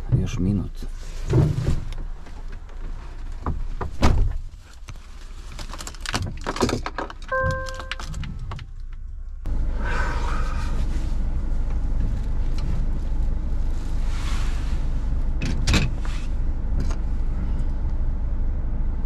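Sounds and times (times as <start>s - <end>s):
short dashboard beep: 7.3s - 8.0s.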